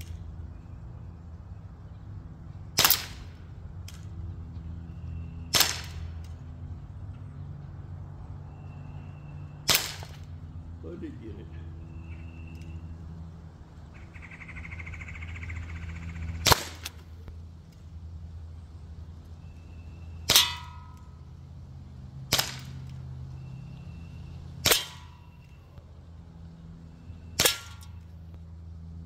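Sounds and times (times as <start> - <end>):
air pistol firing shots: 2.8 - 3.4, 5.5 - 6.3, 9.7 - 10.3, 16.4 - 17.0, 20.3 - 20.7, 22.3 - 22.9, 24.6 - 25.2, 27.4 - 27.9.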